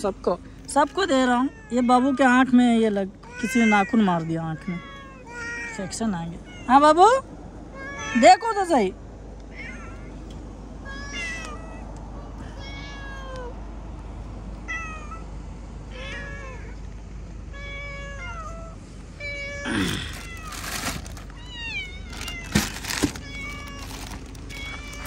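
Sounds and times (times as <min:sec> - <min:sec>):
cats meowing: 0:03.2 - 0:05.8, 0:12.4 - 0:13.5, 0:17.6 - 0:25.0
rustling noise: 0:20.1 - 0:21.4, 0:22.0 - 0:25.0.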